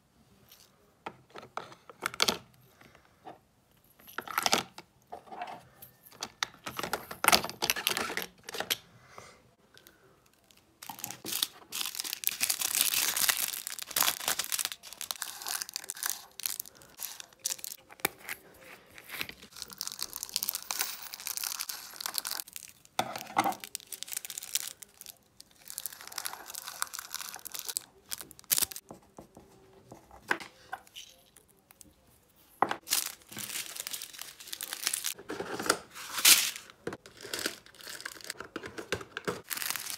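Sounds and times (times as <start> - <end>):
plastic bags crinkling: 10.8 - 17.9, 19.2 - 28.8, 32.8 - 35.2, 36.1 - 38.4, 39.2 - 39.9
plastic bag tearing: 11.2 - 17.8, 32.8 - 35.2, 39.4 - 39.9.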